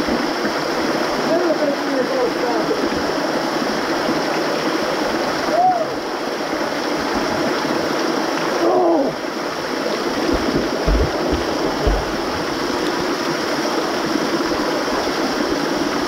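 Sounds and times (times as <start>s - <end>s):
waterfall splashing into pool: 0.0s - 16.0s
dull thumps: 10.2s - 12.6s.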